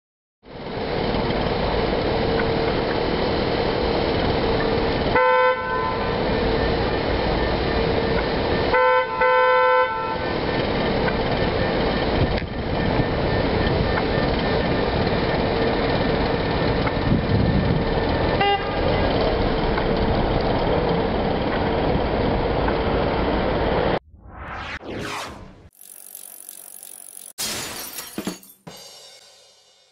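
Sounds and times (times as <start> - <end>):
traffic noise: 0.6 - 24.0
car horn beeping: 18.4 - 18.8.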